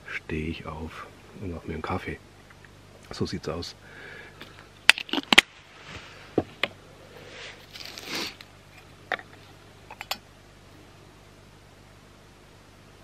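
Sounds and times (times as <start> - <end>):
short hiss: 7.2 - 8.5
metal lids and mug clinking: 9.9 - 10.2.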